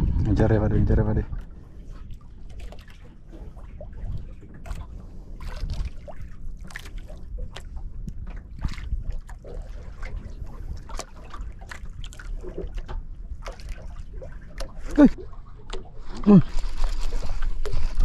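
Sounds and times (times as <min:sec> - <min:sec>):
low rumble: 0:00.0 - 0:02.5
water slapping boat hull: 0:00.0 - 0:18.0.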